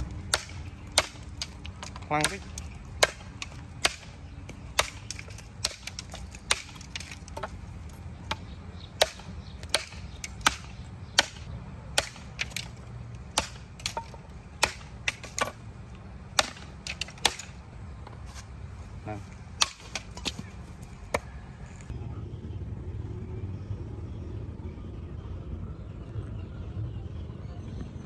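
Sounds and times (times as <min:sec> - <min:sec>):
machete chopping stalk: 0:00.0 - 0:15.6, 0:16.3 - 0:17.6.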